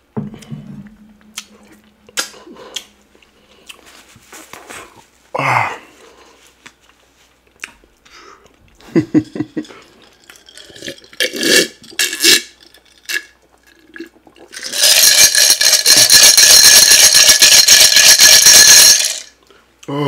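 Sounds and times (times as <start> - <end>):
person gulping a drink: 0.4 - 3.8, 9.5 - 18.8
ice rattling in a glass: 9.6 - 13.3, 14.5 - 19.3.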